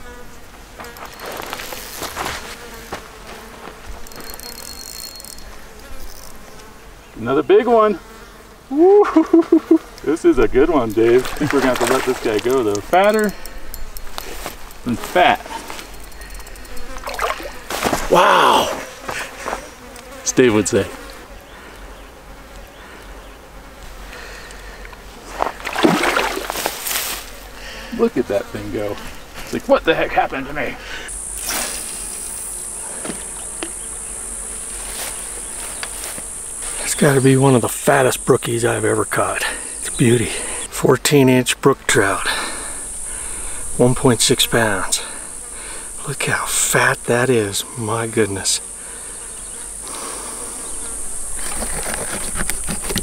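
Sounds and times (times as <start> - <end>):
flying insects buzzing: 0.0 - 53.0
fishing reel ticking: 4.0 - 6.4, 12.4 - 14.9, 15.9 - 17.0.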